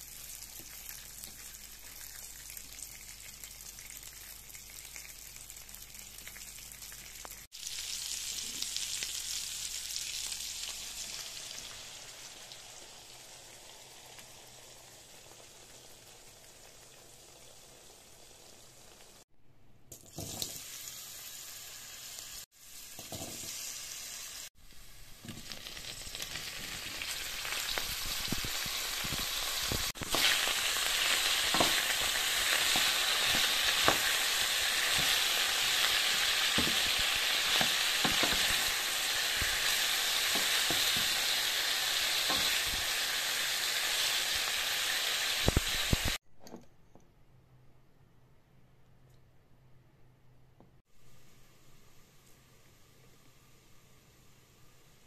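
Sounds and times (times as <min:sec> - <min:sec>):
vegetables sizzling in a pan: 0:00.0 - 0:19.2, 0:20.0 - 0:46.2.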